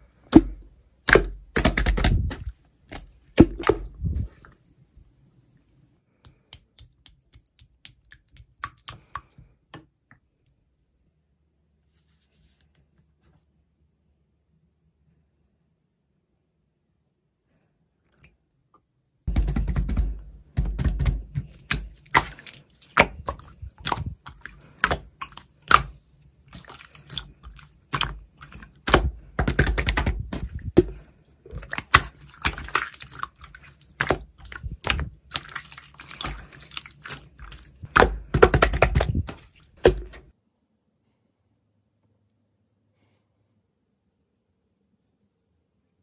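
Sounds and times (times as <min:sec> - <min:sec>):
slime squishing and crackling: 0:00.3 - 0:04.3, 0:19.3 - 0:40.3.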